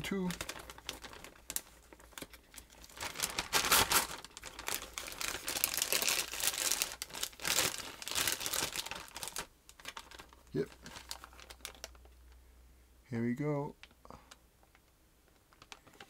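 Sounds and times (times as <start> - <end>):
plastic bag crinkling: 0.0 - 12.3, 14.3 - 16.0.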